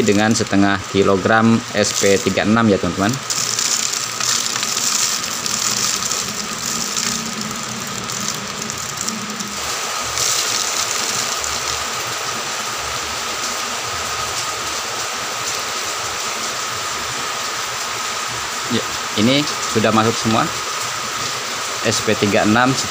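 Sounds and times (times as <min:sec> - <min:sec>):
granules pouring into plastic bottle: 0:01.7 - 0:12.4.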